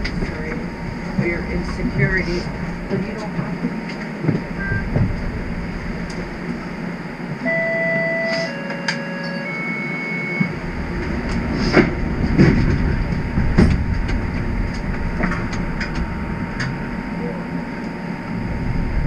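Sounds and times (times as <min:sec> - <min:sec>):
clunks and rattles: 0:00.0 - 0:06.6, 0:10.5 - 0:16.9
streetcar low rumble: 0:00.0 - 0:19.0
three-note electronic chime: 0:07.4 - 0:10.5.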